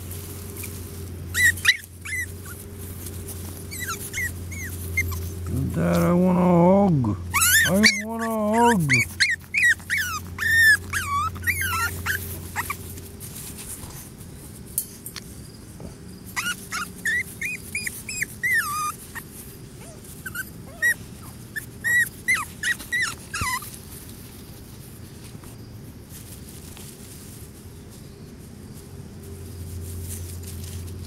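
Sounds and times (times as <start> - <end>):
puppy whimpering: 1.3 - 2.7, 3.6 - 6.2, 7.2 - 12.9, 16.4 - 23.8.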